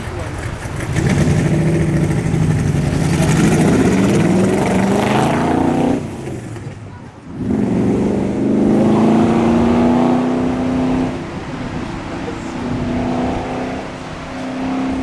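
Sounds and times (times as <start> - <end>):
car engine revving: 0.0 - 15.0.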